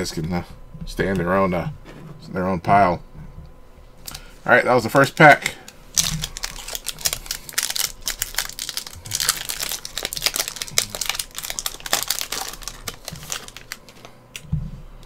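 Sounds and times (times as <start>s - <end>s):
foil wrapper crinkling and tearing: 5.9s - 14.4s.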